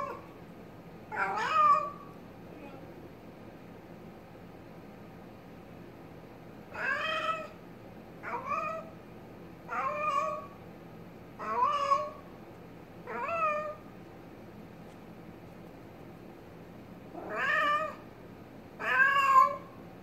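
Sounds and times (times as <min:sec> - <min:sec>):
cat meowing: 0:01.1 - 0:02.1, 0:06.7 - 0:07.6, 0:08.2 - 0:08.9, 0:09.7 - 0:10.6, 0:11.4 - 0:12.2, 0:13.1 - 0:13.9, 0:17.2 - 0:18.0, 0:18.8 - 0:19.8.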